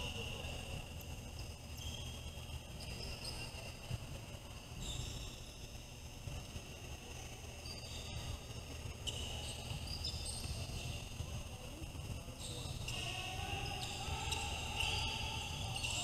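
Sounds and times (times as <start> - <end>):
low gym hum: 0.0 - 16.0
shoes squeaking on court: 9.0 - 11.0.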